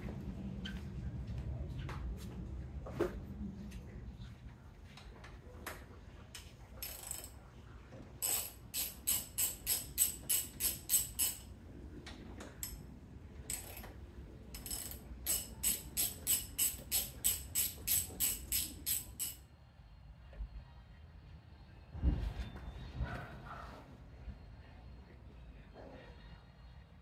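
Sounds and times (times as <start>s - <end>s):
ratchet wrench clicking: 6.8s - 7.4s, 8.2s - 11.5s, 12.6s - 12.8s, 13.5s - 13.9s, 14.5s - 19.4s.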